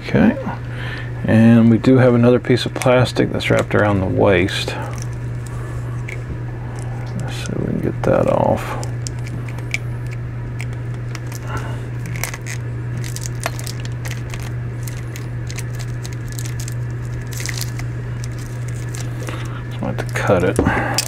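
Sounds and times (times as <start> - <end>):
steady low hum: 0.0 - 21.0
plastic wrapper crinkling: 8.8 - 20.6.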